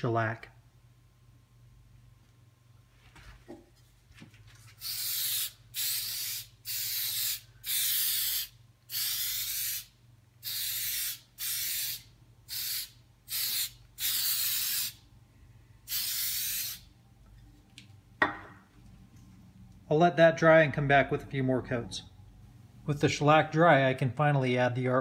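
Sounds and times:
aerosol spray can hissing: 4.8s - 15.0s, 15.9s - 16.8s.

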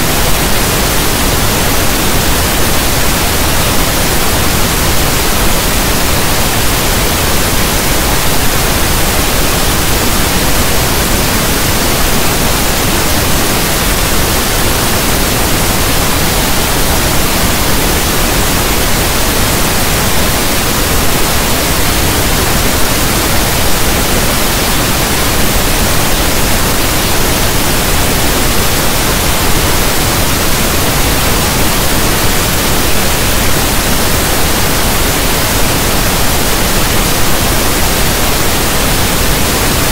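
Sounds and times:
static hiss: 0.0s - 39.9s.

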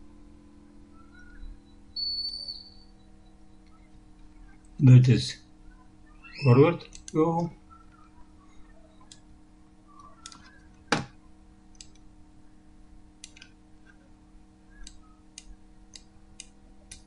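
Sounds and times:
faint steady hum: 0.0s - 17.0s
computer mouse clicking: 6.8s - 7.2s, 10.0s - 10.8s, 11.7s - 12.1s, 13.2s - 14.0s, 14.8s - 17.0s.

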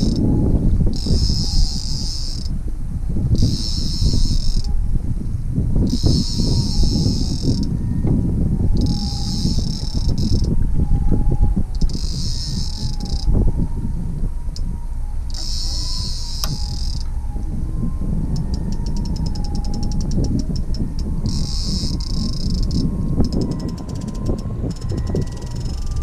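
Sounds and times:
fishing reel clicking: 0.0s - 0.2s, 0.9s - 2.5s, 3.4s - 4.7s, 5.9s - 7.7s, 8.8s - 10.5s, 11.8s - 13.3s, 15.3s - 17.1s, 18.4s - 26.0s
wind buffeting microphone: 0.0s - 26.0s.

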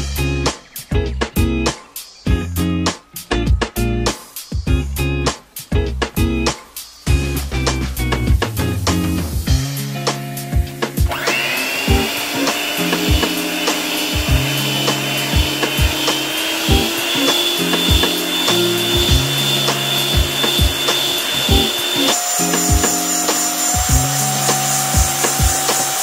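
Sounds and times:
background music with steady beat: 0.0s - 26.0s
electric hand mixer whirring: 11.0s - 26.0s.

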